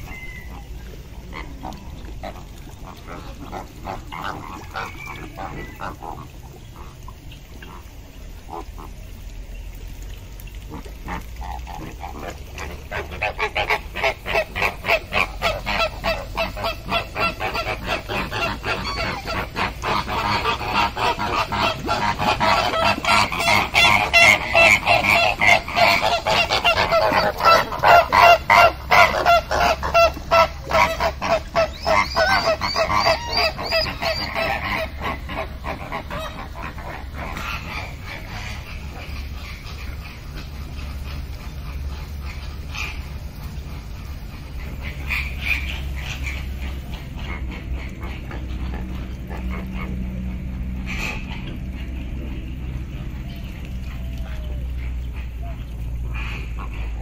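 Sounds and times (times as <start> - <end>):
birds honking: 13.0 - 43.0.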